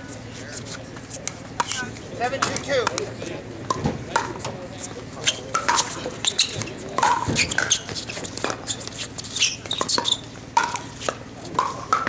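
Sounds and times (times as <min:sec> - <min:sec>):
sneakers squeaking on court: 0:04.8 - 0:11.1
paddles hitting plastic ball: 0:05.5 - 0:08.9, 0:09.6 - 0:12.0.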